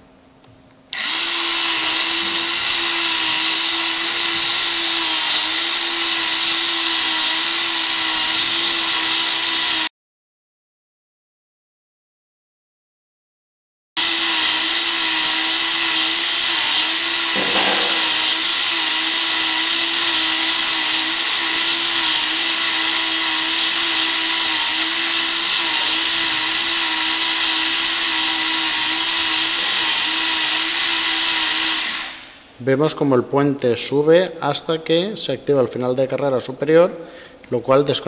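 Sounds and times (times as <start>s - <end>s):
small electric motor whirring: 0.9s - 9.9s, 14.0s - 32.4s.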